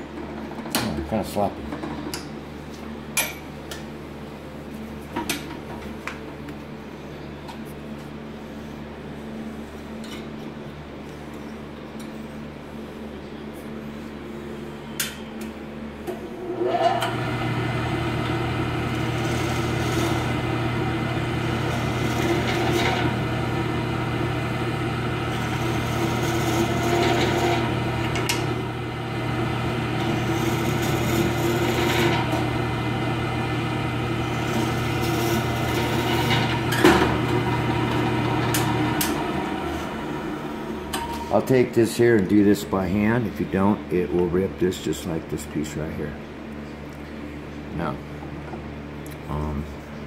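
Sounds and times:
drill press motor running: 0:16.4 - 0:41.1
drill bit rasping into wood: 0:18.8 - 0:23.8, 0:25.2 - 0:28.4, 0:30.0 - 0:32.4, 0:34.2 - 0:36.6.

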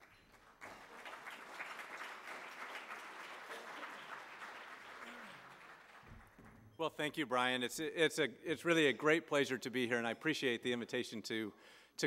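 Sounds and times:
audience applauding in a hall: 0:00.0 - 0:06.6.

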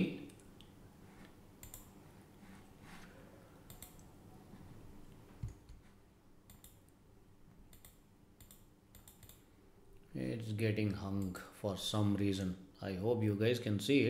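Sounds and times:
mouse and keyboard clicks: 0:03.7 - 0:04.1, 0:07.7 - 0:09.4.

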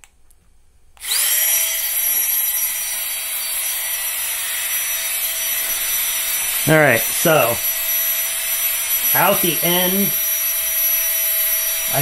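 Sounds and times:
electric inflator pump motor whine: 0:01.0 - 0:12.0.

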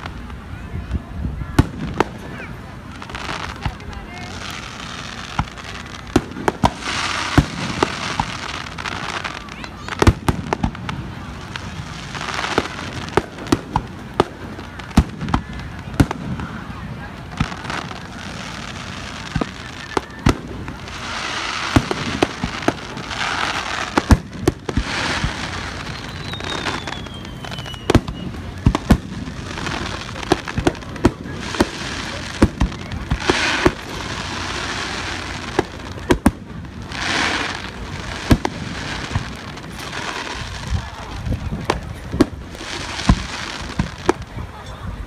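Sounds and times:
firework bangs: 0:00.0 - 0:44.5
crackling firework stars: 0:00.0 - 0:45.0
falling firework whistle: 0:21.3 - 0:29.4.

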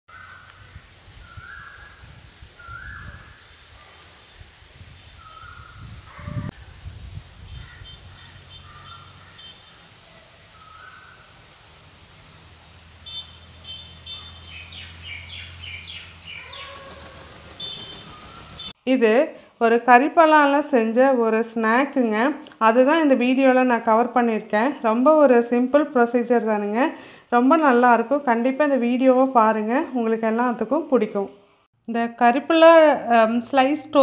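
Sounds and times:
birds calling: 0:00.1 - 0:18.8
insect drone: 0:00.1 - 0:18.8.

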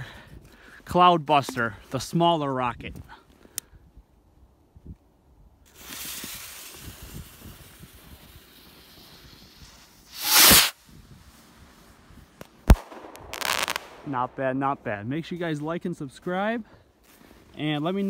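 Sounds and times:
firework fuse hissing and sputtering: 0:05.6 - 0:10.9, 0:12.7 - 0:14.1
rocket launch whoosh: 0:10.1 - 0:10.8, 0:12.7 - 0:14.4.

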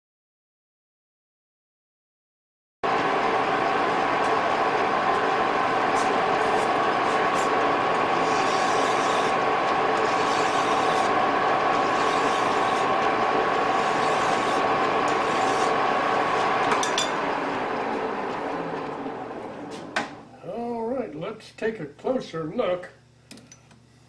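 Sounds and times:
metal lathe whining: 0:02.9 - 0:20.3
hiss of metal cutting: 0:08.2 - 0:09.3.

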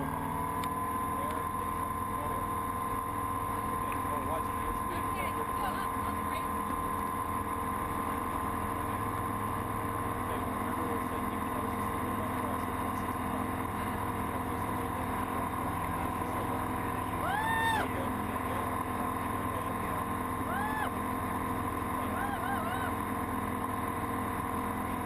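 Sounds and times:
airplane engine and propeller droning: 0:00.0 - 0:25.0
constant hum: 0:00.0 - 0:25.0
person exclaiming: 0:17.2 - 0:17.9, 0:20.5 - 0:20.9, 0:22.1 - 0:23.0.

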